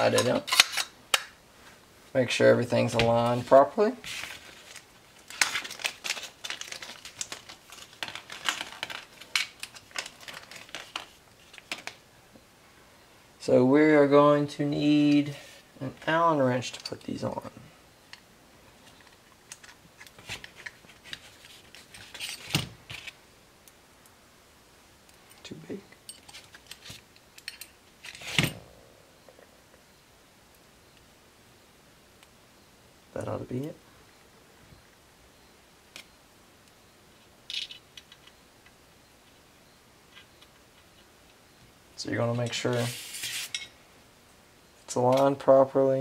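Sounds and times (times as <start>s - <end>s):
metal parts and tools clinking: 0.0s - 0.9s, 21.8s - 23.1s, 26.0s - 28.6s, 37.5s - 38.3s
small metal parts clicking: 37.5s - 38.4s.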